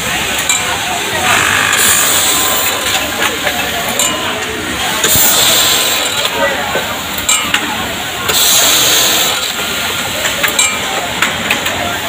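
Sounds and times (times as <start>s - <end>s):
factory floor noise: 0.0s - 12.0s
compressed air hiss: 8.3s - 9.8s.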